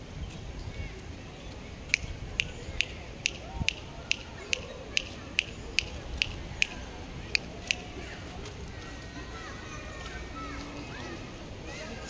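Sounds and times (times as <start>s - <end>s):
sharp clicks: 1.9s - 7.9s.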